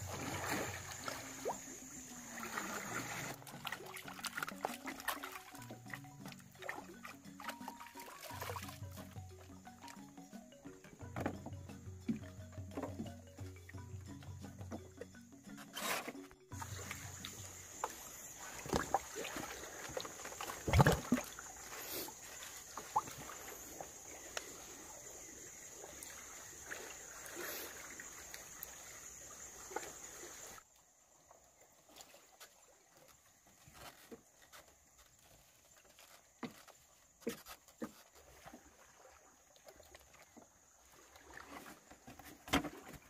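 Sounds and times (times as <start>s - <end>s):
sea water sloshing and lapping: 0.0s - 10.2s, 14.5s - 43.0s
knocks and thumps: 10.9s - 13.4s.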